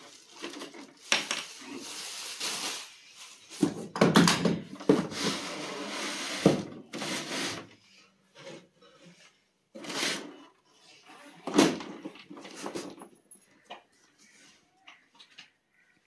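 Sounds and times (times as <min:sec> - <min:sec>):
cardboard and plastic rubbing: 0:04.6 - 0:07.8, 0:08.4 - 0:10.4.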